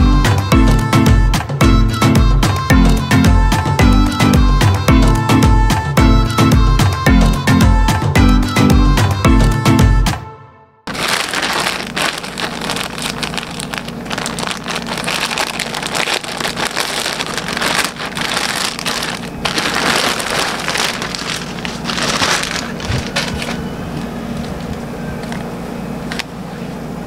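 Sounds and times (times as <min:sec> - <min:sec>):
plastic bag crinkling: 0:10.9 - 0:24.8.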